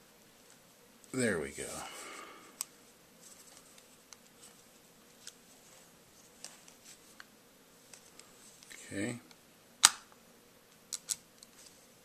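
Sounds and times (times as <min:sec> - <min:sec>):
faint rustle: 0:00.2 - 0:09.3, 0:11.4 - 0:12.0
pistol clicks: 0:09.8 - 0:10.1.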